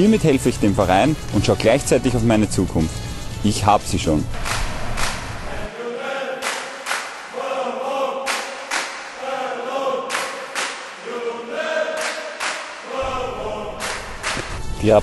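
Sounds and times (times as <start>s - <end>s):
sharp beats or claps: 4.3s - 5.5s, 6.4s - 7.4s, 8.3s - 9.2s, 10.1s - 11.1s, 12.0s - 12.9s, 13.8s - 14.6s
group of voices singing: 5.3s - 14.6s.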